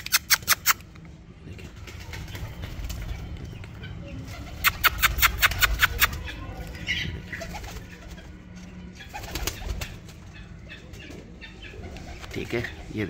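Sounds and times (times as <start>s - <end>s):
bird wings flapping: 1.6s - 6.3s, 7.3s - 8.3s, 9.1s - 10.3s, 11.8s - 12.8s.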